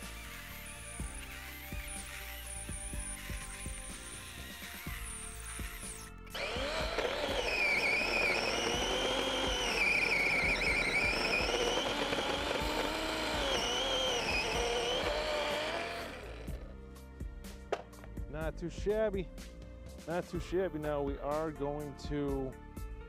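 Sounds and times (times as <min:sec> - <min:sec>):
chainsaw cutting log: 0:00.0 - 0:16.7.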